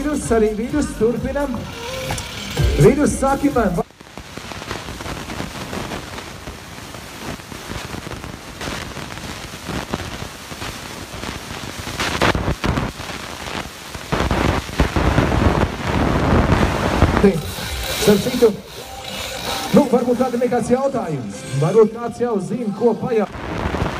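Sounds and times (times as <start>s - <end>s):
chainsaw cutting ice: 17.4s - 20.5s.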